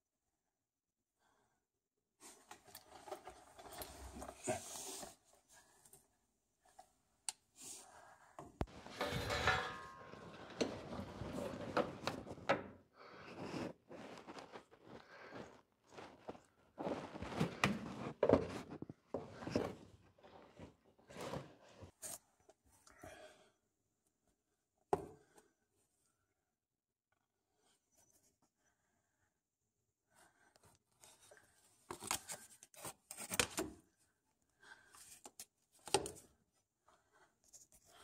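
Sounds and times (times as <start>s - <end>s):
rustling scraping and knocking: 8.7s - 22.1s.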